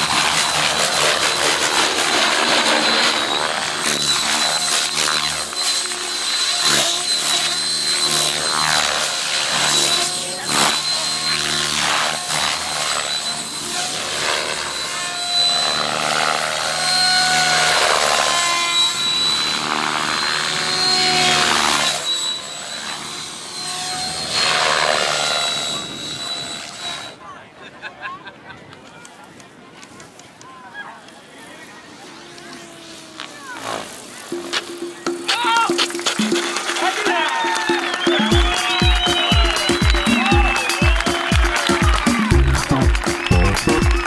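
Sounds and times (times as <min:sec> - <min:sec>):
rotor blades whooshing: 0:00.0 - 0:26.8
high whine of helicopter drive: 0:00.0 - 0:27.3, 0:31.6 - 0:44.0.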